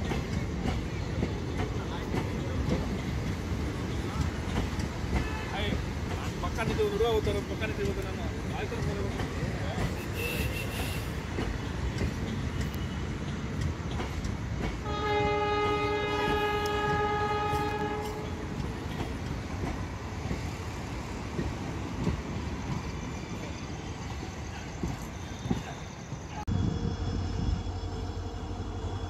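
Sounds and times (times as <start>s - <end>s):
train coaches rumbling on rails: 0.0s - 29.0s
diesel locomotive horn: 10.0s - 11.3s, 14.8s - 18.6s.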